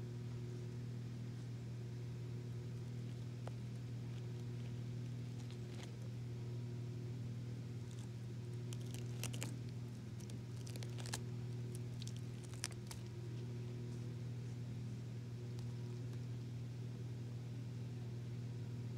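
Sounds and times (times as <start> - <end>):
steady low hum: 0.0 - 18.9
cat chewing plastic bristles: 2.7 - 6.2, 7.8 - 13.4.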